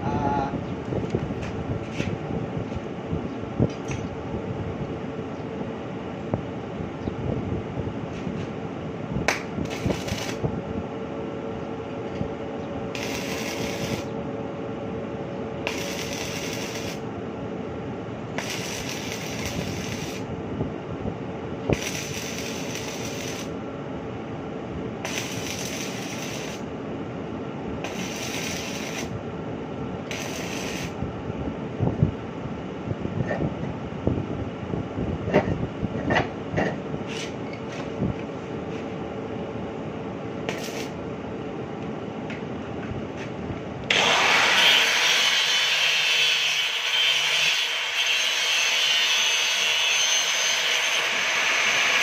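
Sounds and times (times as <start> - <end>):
steady mechanical hum: 0.0 - 52.0
arc welding crackling hiss: 9.6 - 10.5, 13.0 - 14.1, 15.7 - 17.1, 18.4 - 20.3, 21.7 - 23.6, 25.0 - 26.7, 27.8 - 29.2, 30.1 - 31.0, 40.5 - 41.0, 43.9 - 52.0.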